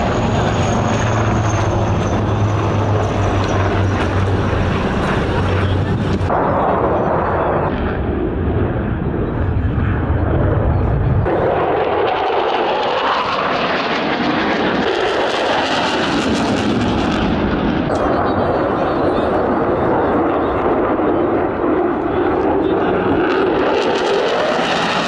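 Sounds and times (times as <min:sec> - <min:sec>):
afterburner roar: 0:00.0 - 0:25.0
jet engine roar: 0:00.0 - 0:25.0.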